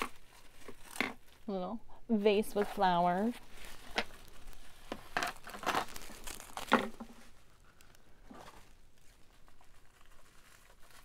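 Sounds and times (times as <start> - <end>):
packing wrap crinkling: 0.0 - 1.5, 2.7 - 11.0.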